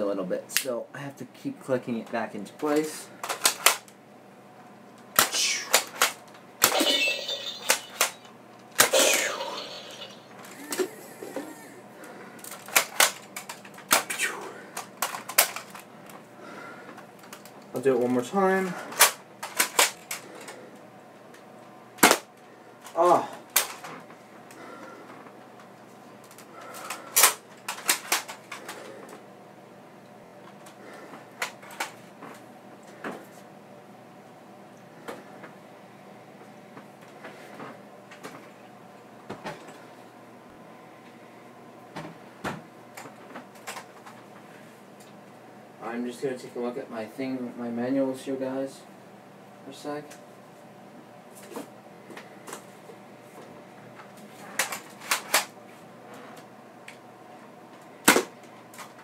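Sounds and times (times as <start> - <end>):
electronic target sound effects: 6.7 - 8.2, 8.9 - 10.4.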